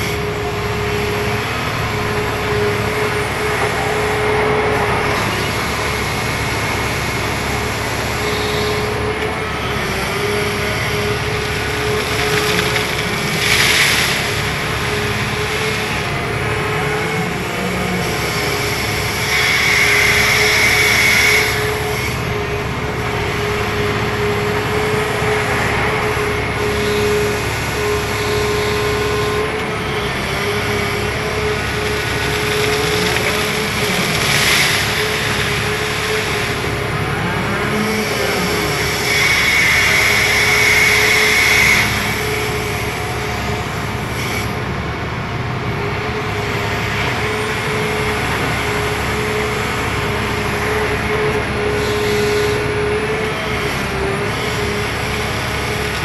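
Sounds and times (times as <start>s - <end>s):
excavator engine rumbling with whine: 0.0s - 56.0s.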